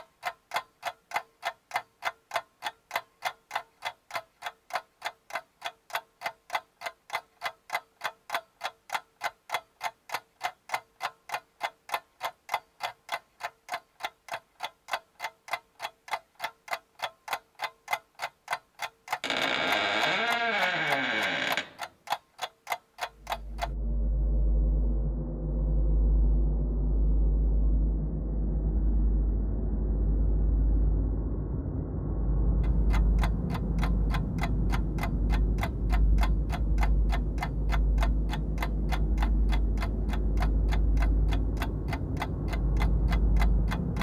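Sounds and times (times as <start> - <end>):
clock ticking: 0.0 - 23.8, 32.6 - 44.0
deep low musical rumble: 23.4 - 44.0.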